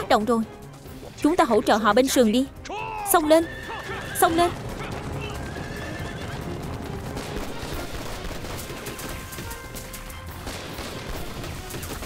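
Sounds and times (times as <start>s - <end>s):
background music: 0.0s - 12.0s
rifle shots cracking: 7.0s - 9.6s.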